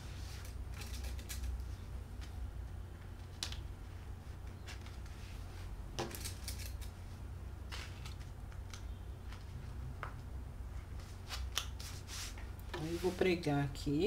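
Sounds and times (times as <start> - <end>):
low steady hum: 0.0 - 14.0
fabric rustling: 10.7 - 13.5.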